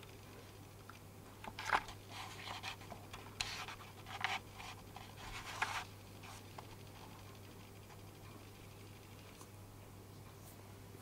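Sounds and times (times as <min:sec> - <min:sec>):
steady low hum: 0:00.0 - 0:11.0
scratchy camcorder handling rustles: 0:01.5 - 0:06.4.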